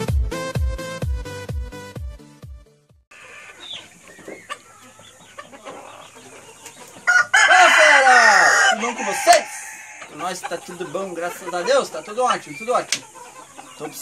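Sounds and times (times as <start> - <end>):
chickens clucking: 3.1 - 14.0
rooster crowing: 7.0 - 10.5.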